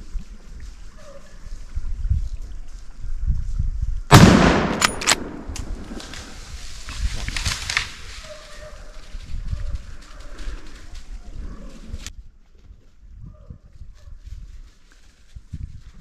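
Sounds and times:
gunshot with echo: 0:04.1 - 0:05.9.

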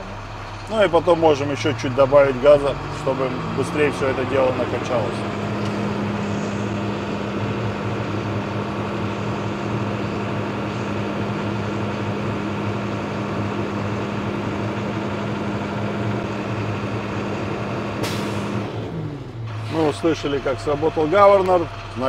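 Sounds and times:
diesel truck engine running: 0:00.0 - 0:22.0.

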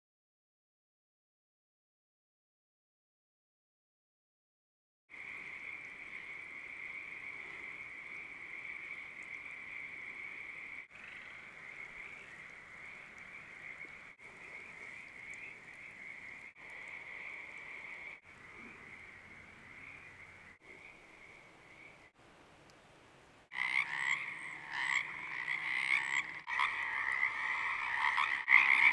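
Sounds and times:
chorus of tree frogs calling: 0:05.1 - 0:22.1, 0:23.5 - 0:28.9.

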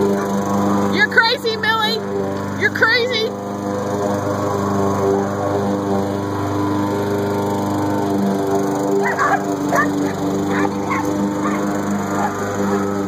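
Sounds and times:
small engine droning: 0:00.0 - 0:13.0
dogs barking: 0:00.1 - 0:00.4, 0:09.0 - 0:13.0.

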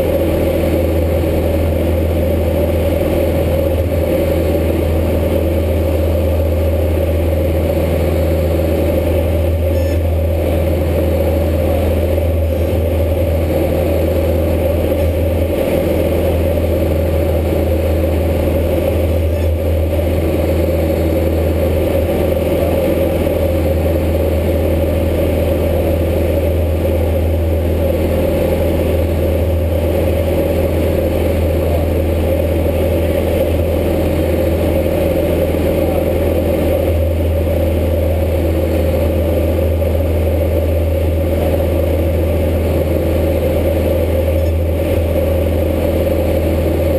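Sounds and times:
airplane engine and propeller drone: 0:00.0 - 0:46.9.

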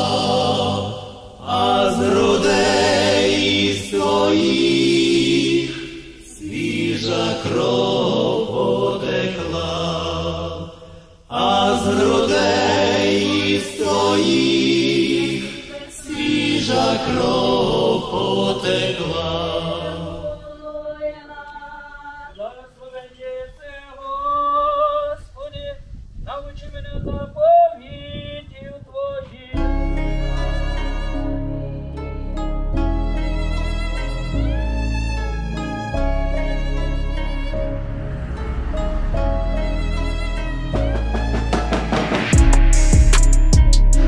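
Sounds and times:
choir singing slow chant: 0:00.0 - 0:25.3, 0:29.6 - 0:32.3, 0:35.4 - 0:42.3.

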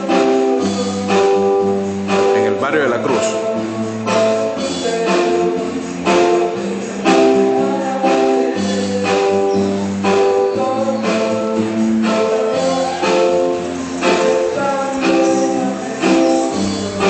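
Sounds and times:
live band playing: 0:00.0 - 0:17.0.

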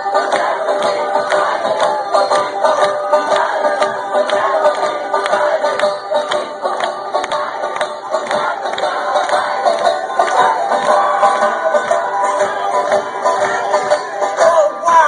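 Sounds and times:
acoustic guitar strumming: 0:00.0 - 0:15.0
group of voices singing: 0:00.0 - 0:15.0.

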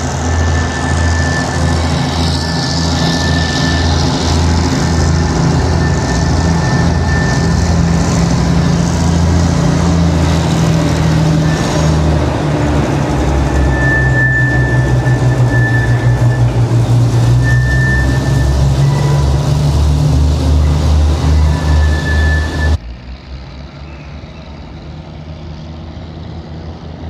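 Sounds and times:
diesel locomotive engine running: 0:00.0 - 0:27.0
thin high tone: 0:11.2 - 0:22.8.

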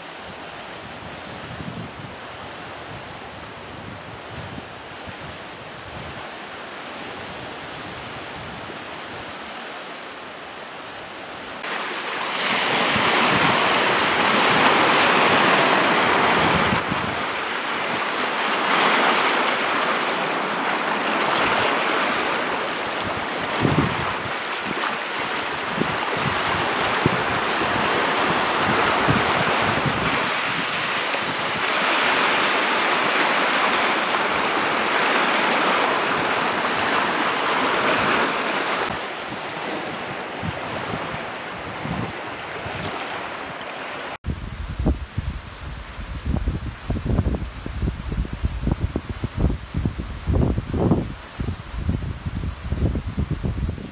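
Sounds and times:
waves breaking on shore: 0:00.0 - 0:53.9
wind buffeting microphone: 0:00.2 - 0:06.3, 0:12.4 - 0:19.3, 0:22.9 - 0:33.5, 0:34.5 - 0:43.6, 0:44.2 - 0:53.9.

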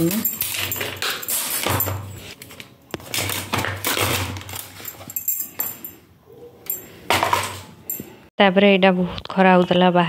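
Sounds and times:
metal utensils clattering: 0:00.0 - 0:06.0.

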